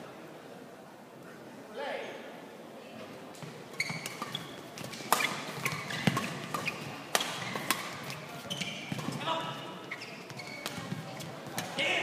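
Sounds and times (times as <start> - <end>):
shoe squeaks: 3.7 - 9.2, 9.8 - 11.3
rackets striking shuttlecock: 3.9 - 8.2.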